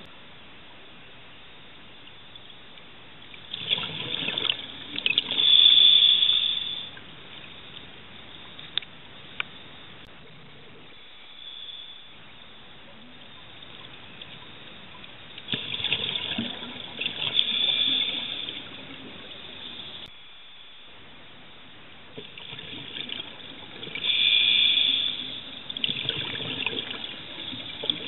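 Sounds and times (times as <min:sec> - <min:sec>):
faint steady hiss: 0:00.0 - 0:28.0
rush of bubbles underwater: 0:03.5 - 0:05.4, 0:15.4 - 0:20.1, 0:22.2 - 0:24.5, 0:25.3 - 0:28.0.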